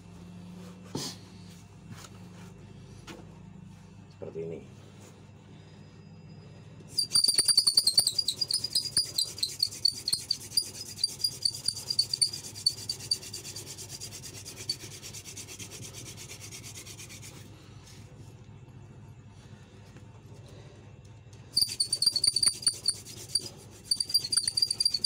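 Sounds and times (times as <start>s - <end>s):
wooden spindle squeaking: 6.9s - 13.6s, 21.5s - 25.0s.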